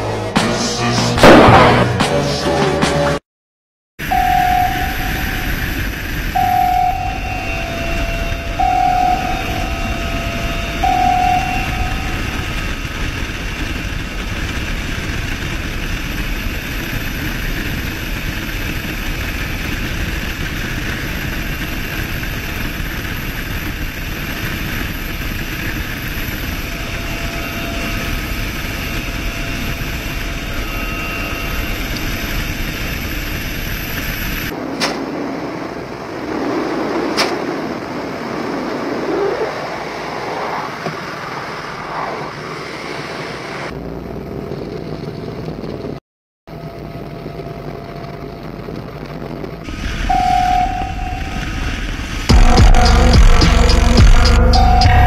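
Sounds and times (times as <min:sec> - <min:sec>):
short beeps: 0:04.0 - 0:05.7, 0:06.3 - 0:12.5, 0:50.1 - 0:51.7, 0:54.5 - 0:55.0
engine roar: 0:04.0 - 0:44.0, 0:47.7 - 0:55.0.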